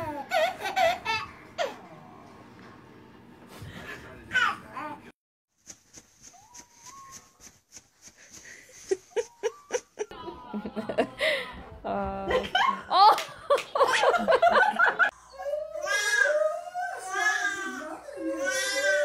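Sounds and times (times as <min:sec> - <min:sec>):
laughter: 0:08.7 - 0:11.2, 0:12.3 - 0:15.2.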